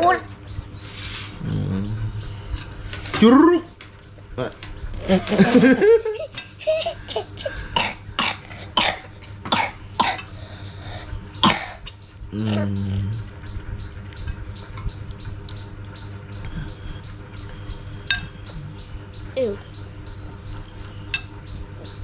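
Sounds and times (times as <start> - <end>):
brief low hum: 0.6 - 2.7
person coughing: 7.2 - 10.3, 11.4 - 11.8.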